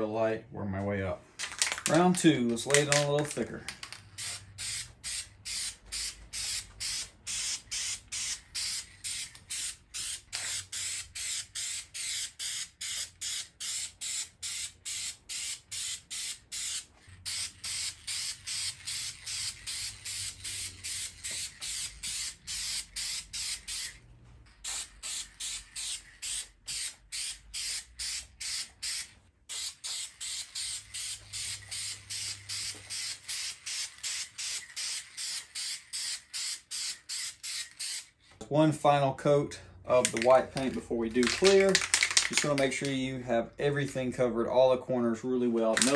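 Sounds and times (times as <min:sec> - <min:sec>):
spray paint can hissing: 0:03.8 - 0:24.0, 0:24.6 - 0:38.1.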